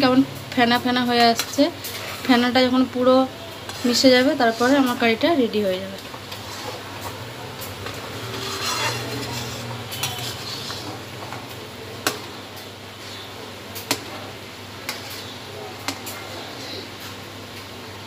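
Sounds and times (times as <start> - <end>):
spoon stirring thick curry: 3.6 - 5.2, 6.0 - 16.8.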